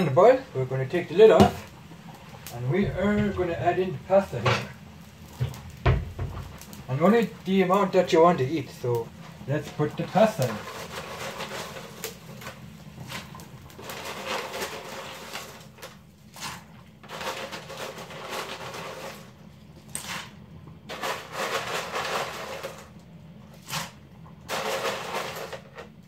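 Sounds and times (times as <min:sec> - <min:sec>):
low steady hum: 0:00.0 - 0:17.2
dry pasta rattling: 0:08.6 - 0:16.0, 0:17.0 - 0:19.4, 0:20.9 - 0:23.0, 0:24.5 - 0:25.9.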